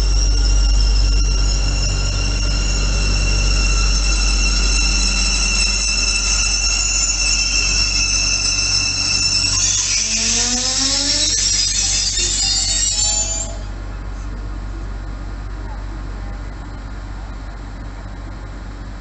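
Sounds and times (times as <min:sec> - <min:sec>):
rising whine: 0:00.0 - 0:13.8
train wheels squealing: 0:00.0 - 0:13.9.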